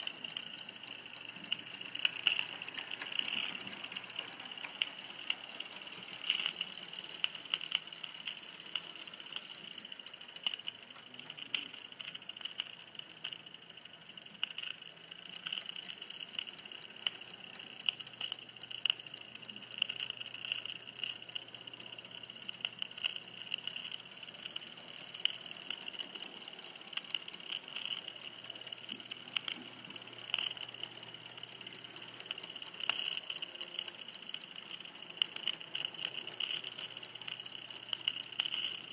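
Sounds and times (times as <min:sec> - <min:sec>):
train clicks and rattles: 0:00.0 - 0:22.6
model train hum: 0:00.0 - 0:38.9.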